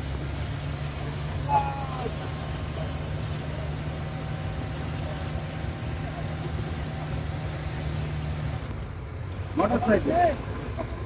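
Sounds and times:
jeep engine running under load: 0.0s - 11.0s
road rumble: 0.0s - 11.0s
short falling cry: 1.4s - 2.3s.

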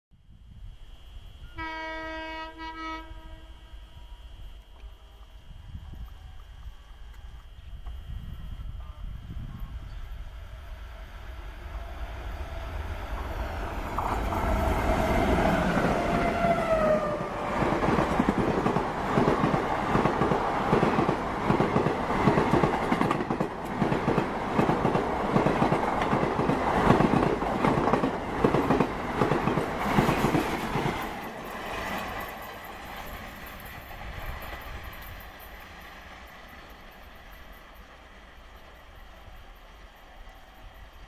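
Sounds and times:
diesel locomotives passing: 0.9s - 41.0s
train horn dropping in pitch: 1.4s - 4.5s.

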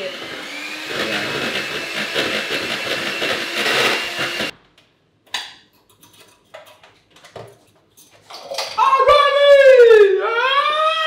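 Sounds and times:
kitchen blender running: 0.0s - 4.5s.

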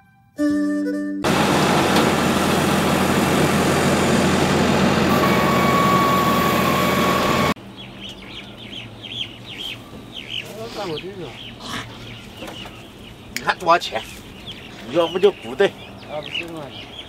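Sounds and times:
combine harvester mechanical din: 1.2s - 7.6s
steady machine whine: 1.2s - 7.6s
bird chirps: 7.2s - 17.0s.

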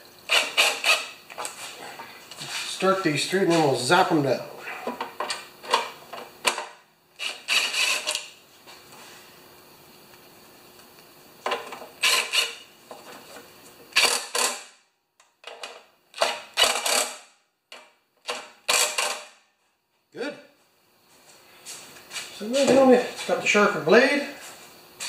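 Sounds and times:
cordless drill driving bolts: 0.3s - 1.2s, 7.2s - 8.3s, 11.6s - 12.6s, 14.0s - 14.7s, 15.4s - 17.2s, 18.2s - 19.3s.

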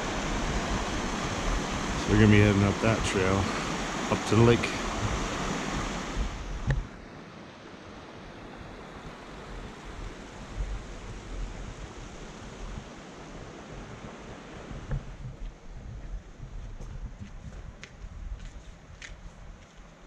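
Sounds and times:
creek running over rocks: 0.0s - 6.8s
wind buffeting microphone: 0.0s - 7.0s, 9.1s - 19.6s.

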